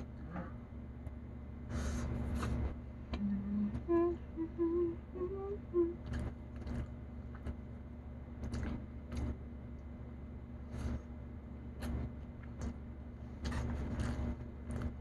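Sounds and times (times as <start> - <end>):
woman humming with mouth full: 3.2 - 6.0
wet chewing clicks: 6.0 - 7.6, 8.4 - 9.4.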